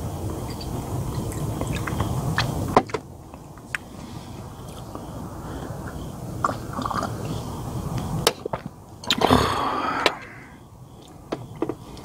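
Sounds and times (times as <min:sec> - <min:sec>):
chewing and biting food: 0:00.4 - 0:02.7.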